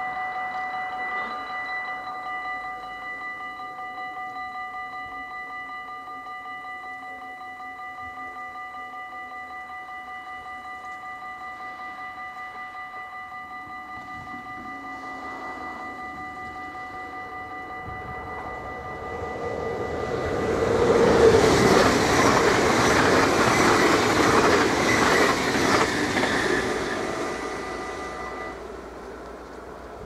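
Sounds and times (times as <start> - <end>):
level crossing bell ringing: 0.0 - 28.7
train rumble: 13.4 - 30.0.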